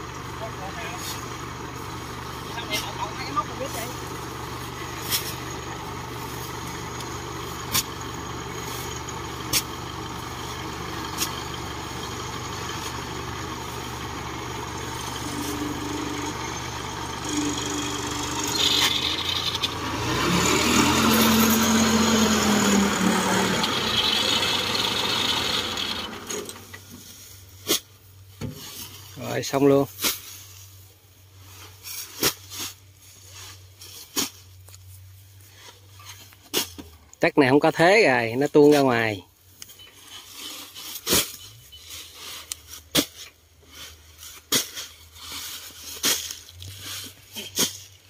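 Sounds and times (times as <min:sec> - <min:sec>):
combine harvester engine running: 0:00.0 - 0:29.7.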